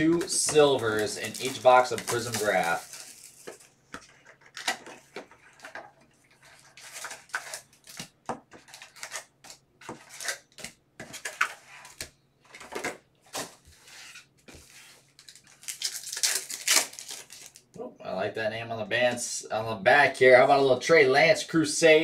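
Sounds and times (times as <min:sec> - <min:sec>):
foil wrappers crinkling: 0:00.0 - 0:13.5, 0:14.5 - 0:17.8.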